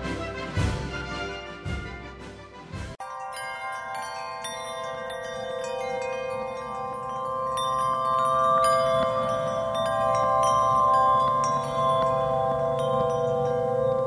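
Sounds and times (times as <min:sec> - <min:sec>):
chimes ringing: 0:03.0 - 0:14.0.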